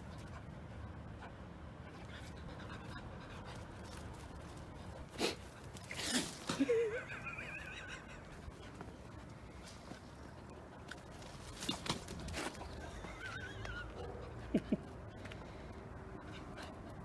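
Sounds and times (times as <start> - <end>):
small dog panting: 0.0 - 6.4.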